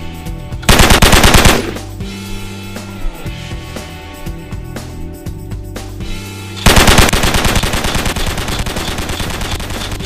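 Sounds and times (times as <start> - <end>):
automatic machine-gun fire: 0.7 - 1.8, 6.6 - 10.0.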